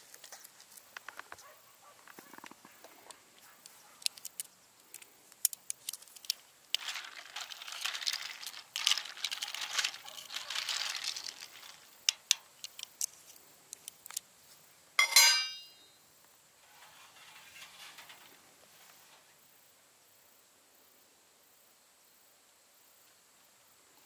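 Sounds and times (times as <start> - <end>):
light clicks and crinkling: 0.0 - 14.6
rustling: 0.0 - 14.7, 16.6 - 19.4
ringing clink: 15.0 - 15.9.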